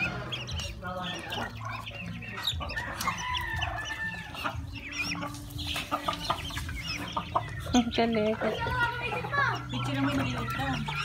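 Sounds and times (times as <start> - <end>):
chickens clucking: 0.0 - 11.0
chicks peeping: 0.0 - 11.0
rooster crowing: 2.7 - 4.4.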